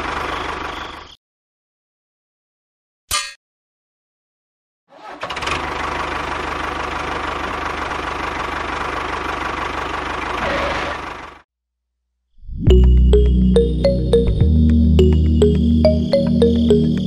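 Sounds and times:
tractor engine running: 0.0 - 1.1, 5.0 - 11.4.

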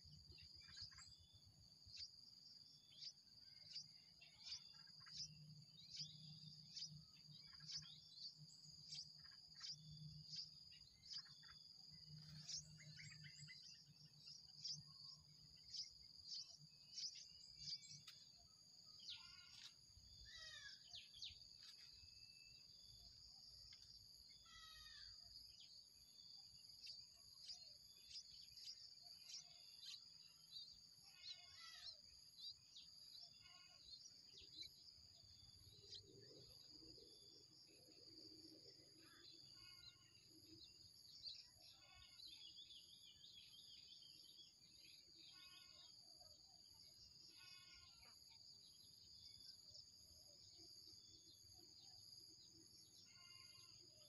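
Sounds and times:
high-pitched insect drone: 53.0 - 53.7.

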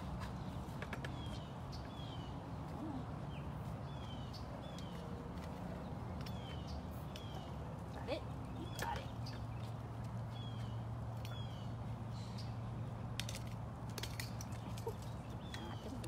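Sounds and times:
bird chirping: 5.8 - 13.0.

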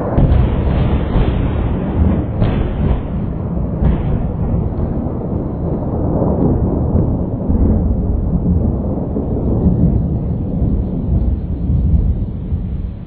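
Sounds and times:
thunder rumbling: 0.0 - 13.0.

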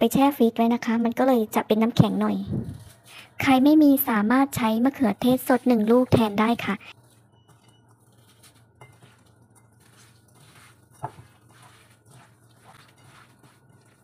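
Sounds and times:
hand kneading meat squelching: 5.2 - 14.0.

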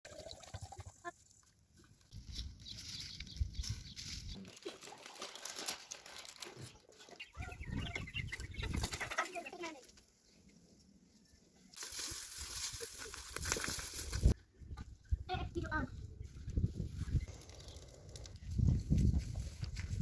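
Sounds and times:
chickens clucking: 6.8 - 9.9.

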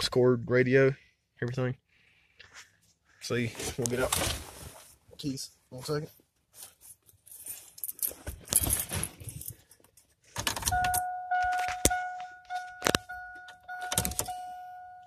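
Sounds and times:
vehicle warning chime dinging: 10.6 - 15.0.

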